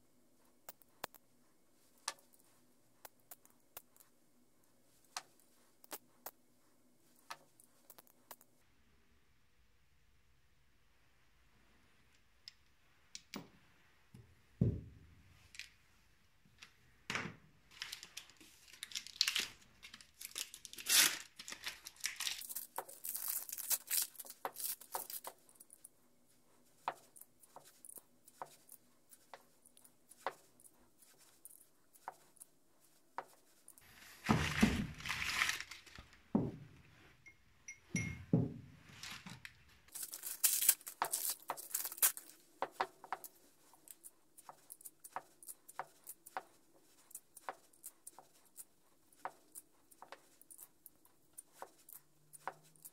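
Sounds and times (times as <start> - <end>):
wrapping paper crinkling and tearing: 17.7 - 25.7, 33.8 - 36.2, 39.0 - 42.4.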